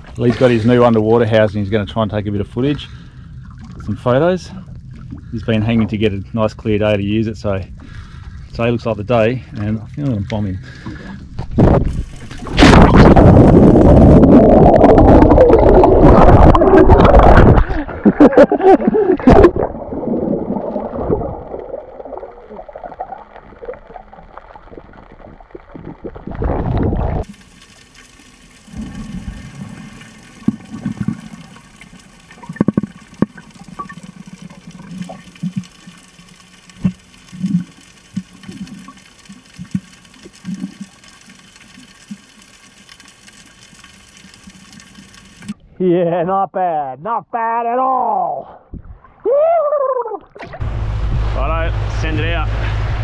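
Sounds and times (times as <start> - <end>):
water sloshing and splashing: 9.4 - 45.6
bubbling gurgles: 11.5 - 45.6.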